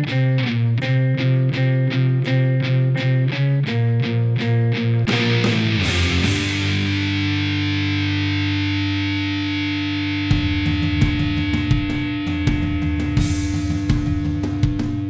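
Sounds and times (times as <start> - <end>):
distorted electric guitar: 0.0 - 15.0
fast drum beat: 10.3 - 15.0.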